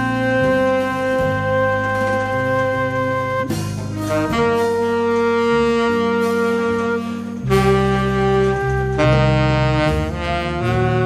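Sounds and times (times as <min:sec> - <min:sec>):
electric bass line: 0:00.0 - 0:11.0
flute: 0:00.0 - 0:11.0
saxophone: 0:00.0 - 0:11.0.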